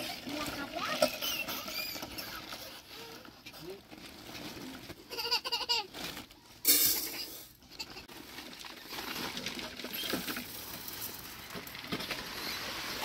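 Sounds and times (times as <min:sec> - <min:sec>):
grain rattling against metal pot: 0:00.0 - 0:04.8, 0:06.6 - 0:13.0.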